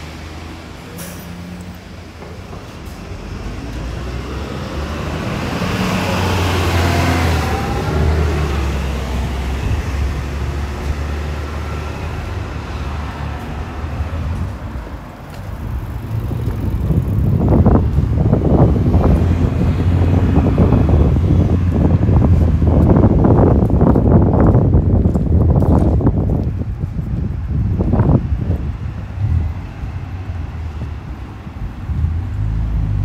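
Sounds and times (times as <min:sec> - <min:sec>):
road noise hum: 0:00.0 - 0:33.0
vehicle passing by: 0:02.8 - 0:24.9.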